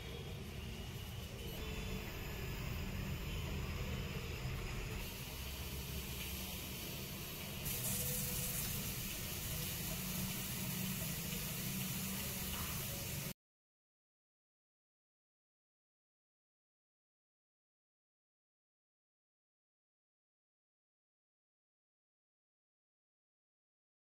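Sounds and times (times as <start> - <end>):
hiss: 5.0 - 13.3.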